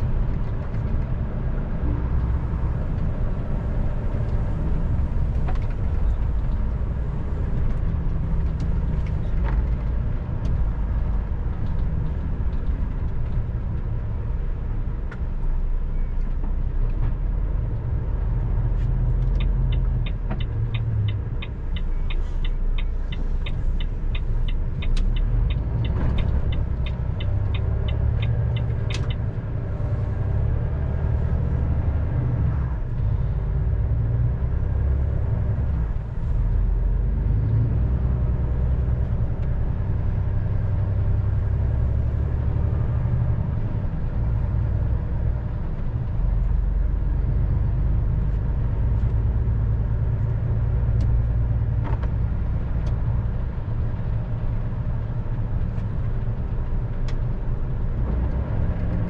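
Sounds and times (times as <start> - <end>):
truck engine and road rumble: 0.0 - 59.0
turn signal ticking: 18.7 - 31.2.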